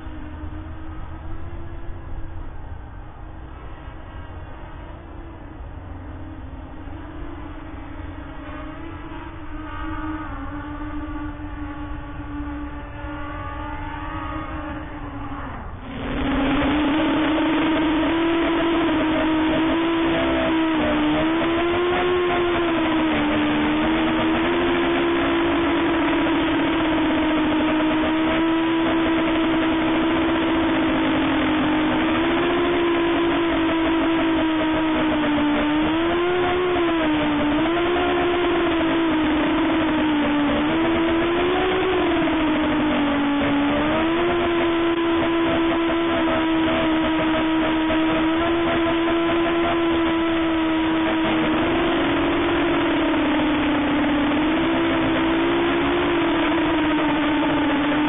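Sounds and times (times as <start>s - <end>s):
quadcopter propellers whining: 13.6s - 58.0s.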